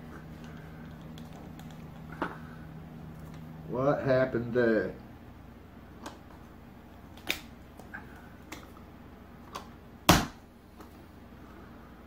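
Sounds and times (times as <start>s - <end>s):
loud sharp smack: 10.1s - 10.4s.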